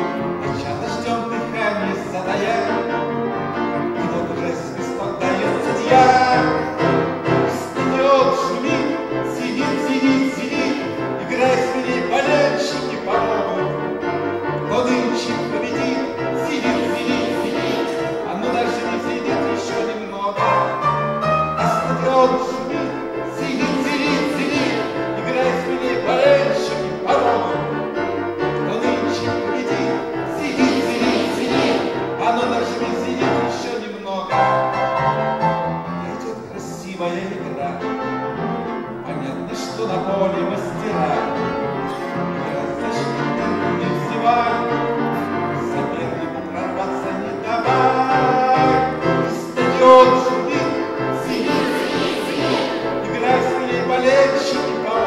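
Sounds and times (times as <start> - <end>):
man singing: 0.0 - 3.1, 3.8 - 20.9, 21.5 - 31.5, 32.1 - 34.8, 36.0 - 52.0, 52.7 - 55.0
grand piano: 0.0 - 55.0.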